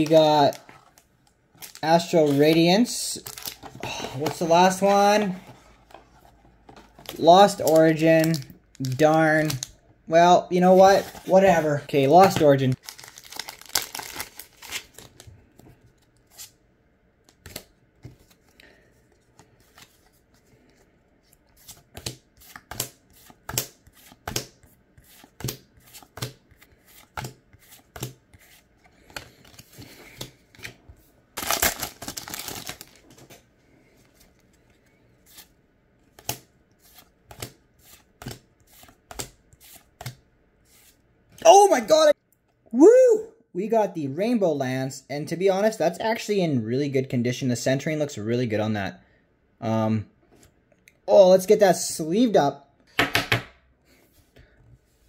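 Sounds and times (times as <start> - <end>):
rustle of cards and wrapper: 0.0 - 4.9, 6.2 - 9.8, 12.3 - 16.5, 31.4 - 35.5
foil wrapper tearing: 12.8 - 15.0, 31.4 - 33.0.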